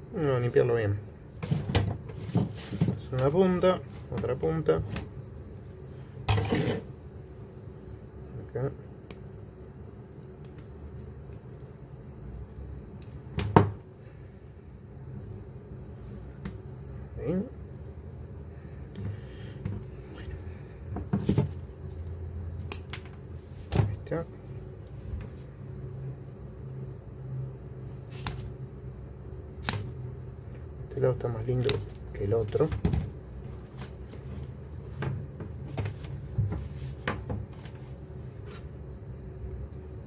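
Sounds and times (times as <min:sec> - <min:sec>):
low background hum: 0:00.0 - 0:40.0
rustling and scraping of wire: 0:01.4 - 0:07.0.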